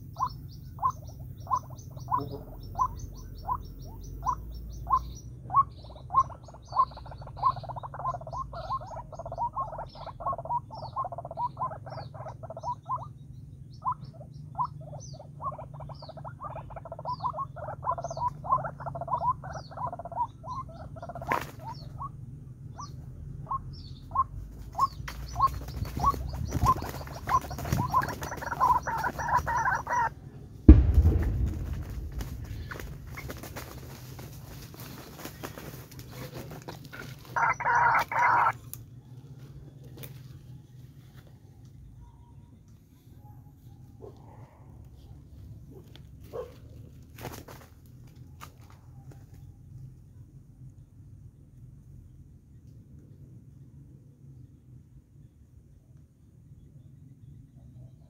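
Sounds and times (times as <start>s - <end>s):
bird croaking calls: 0.0s - 30.2s, 32.0s - 38.6s
loud thump: 30.7s - 33.8s
rustling: 30.7s - 37.4s.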